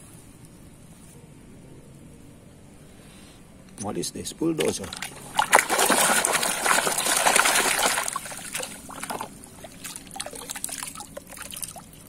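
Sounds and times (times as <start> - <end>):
water splashing in a tub: 4.6 - 12.0
water trickling and dripping: 4.7 - 12.0.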